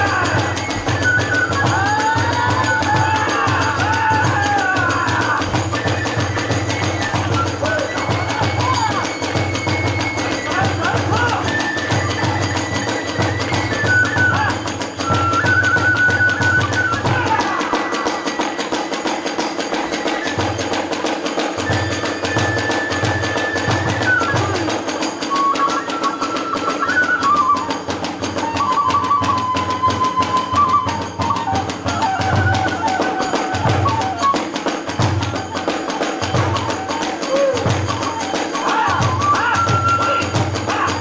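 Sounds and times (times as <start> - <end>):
big drum beats: 0.0 - 14.1
hand cymbals clanging: 0.0 - 15.7, 17.2 - 26.5
bamboo flute melody: 0.0 - 41.0.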